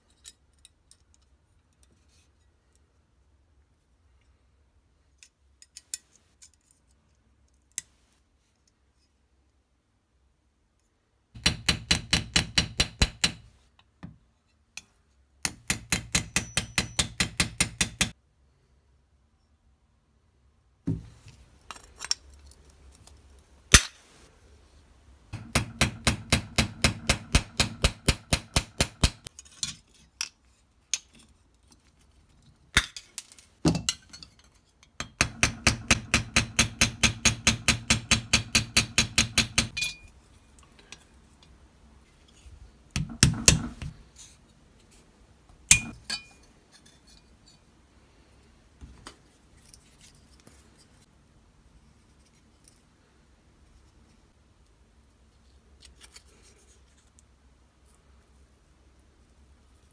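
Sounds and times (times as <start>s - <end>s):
hammer tapping on metal: 11.4s - 13.5s, 15.4s - 18.1s, 25.4s - 29.3s, 35.0s - 40.1s, 43.0s - 43.9s, 45.7s - 46.0s.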